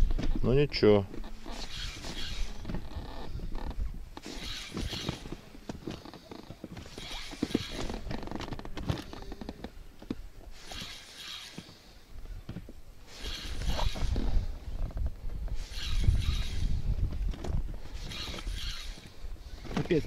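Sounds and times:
fishing reel whirring: 1.4s - 5.4s, 6.0s - 8.4s, 10.5s - 12.0s, 13.1s - 14.5s, 15.5s - 16.9s, 17.8s - 19.8s.

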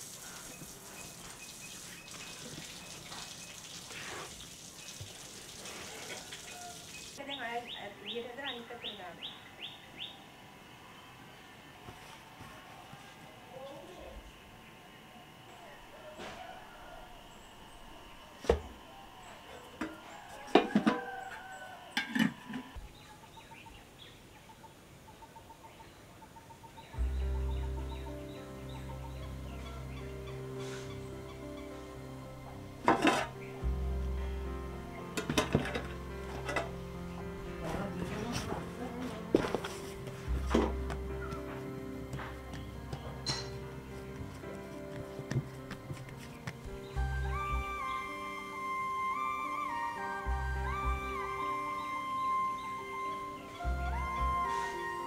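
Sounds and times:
metal lid clanking on pot: 32.8s - 33.4s, 43.2s - 43.6s.

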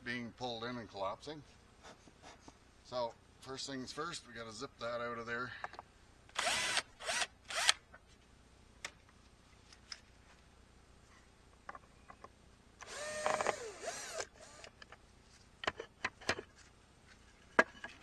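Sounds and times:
cordless drill whirring: 6.4s - 7.8s, 12.8s - 14.7s.

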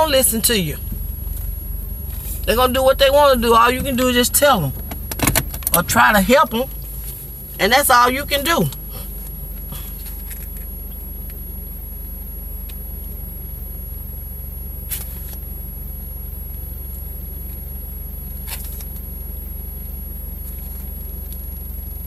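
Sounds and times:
road noise: 0.0s - 10.7s
car engine rumble inside cabin: 0.0s - 22.0s.

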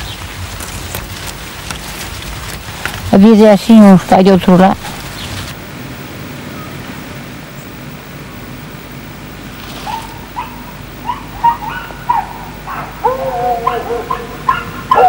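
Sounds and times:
dog drawn-out calls: 9.8s - 15.0s
dogs barking: 9.8s - 15.0s.

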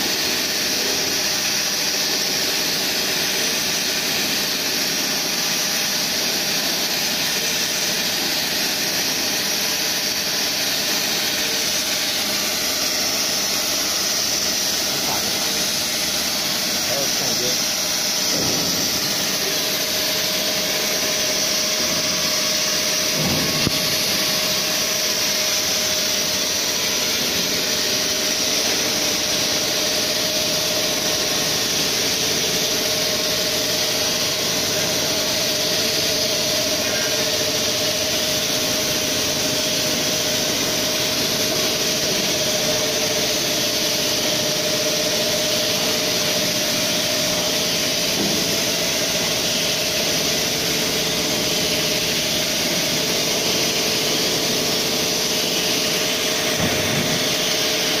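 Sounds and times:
milling machine whine: 0.0s - 58.0s.

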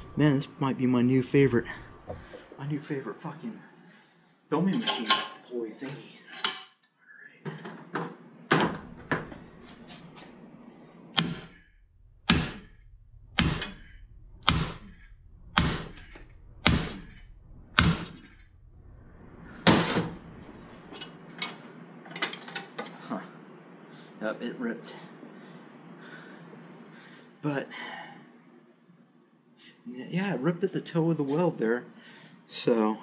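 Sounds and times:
hammer striking metal: 11.2s - 20.9s.

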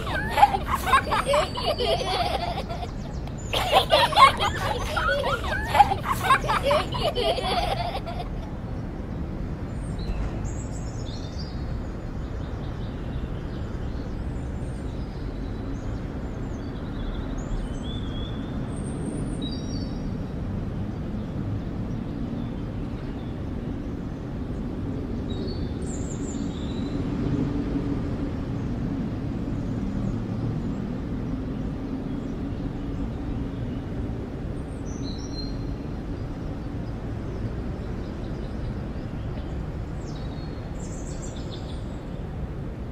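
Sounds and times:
distant traffic rumble: 0.0s - 10.7s.

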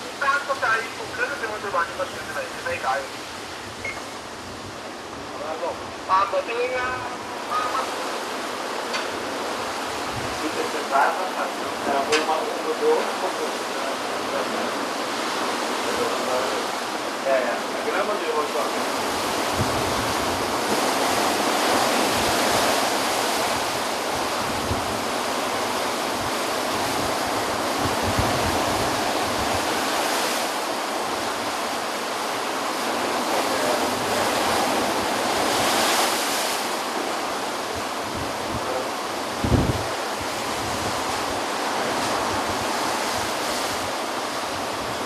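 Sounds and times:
waves breaking on shore: 0.0s - 45.0s
wind buffeting microphone: 6.8s - 10.5s, 18.9s - 33.2s, 33.9s - 45.0s.

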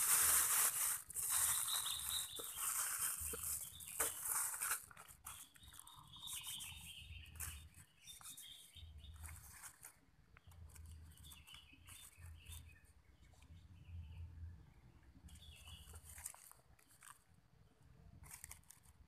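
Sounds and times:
clicks and rustles of handling: 0.0s - 6.7s, 9.1s - 12.7s, 15.7s - 17.4s, 18.2s - 19.0s
birds chirping: 1.2s - 16.2s.

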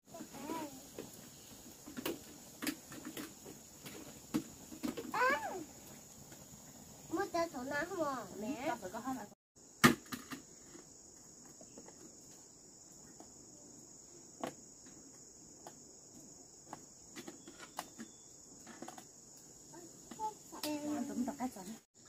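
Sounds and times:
insects chirring: 0.1s - 22.0s.

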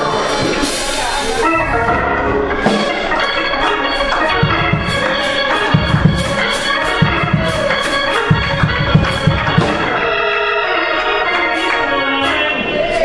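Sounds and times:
cymbal strikes: 0.0s - 10.1s
organ chords: 0.0s - 13.0s
drum hits: 0.2s - 10.2s.

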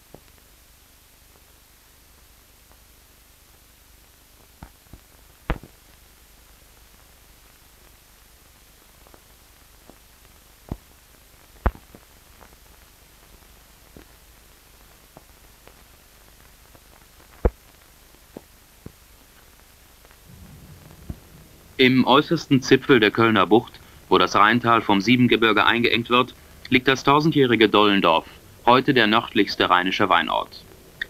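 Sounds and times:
film soundtrack hiss: 0.0s - 31.0s
sharp clicks and pops: 4.6s - 5.8s, 10.6s - 12.6s, 15.1s - 24.1s.

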